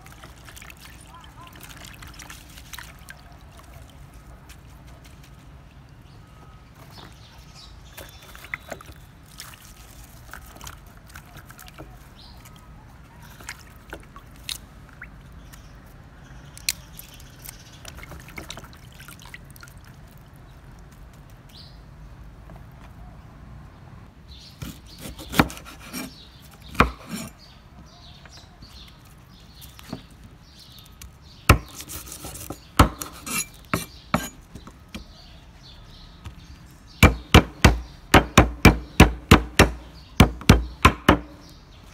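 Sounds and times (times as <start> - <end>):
water splashing and dripping: 0.0 - 4.9, 7.8 - 21.6, 28.8 - 31.8.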